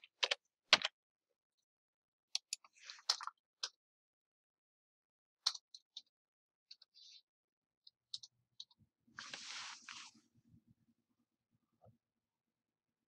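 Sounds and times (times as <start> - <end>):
short rustle: 9.2 - 10.2.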